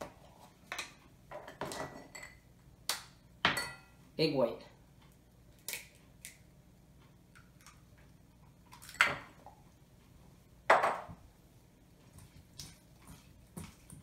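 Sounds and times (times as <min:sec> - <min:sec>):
kitchen items knocking on counter: 0:10.7 - 0:11.2.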